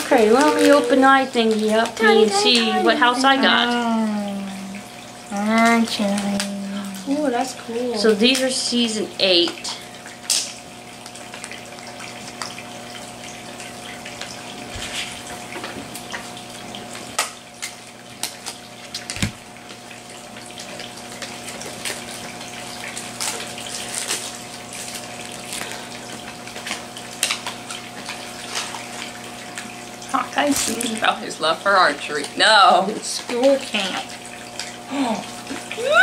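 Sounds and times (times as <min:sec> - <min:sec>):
plastic packaging crinkling: 0:22.8 - 0:26.1.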